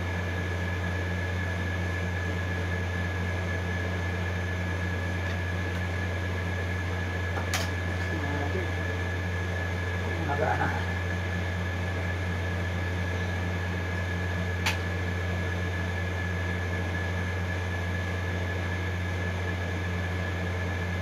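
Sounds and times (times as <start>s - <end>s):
machine hum: 0.0s - 21.0s
sharp click: 14.6s - 14.9s.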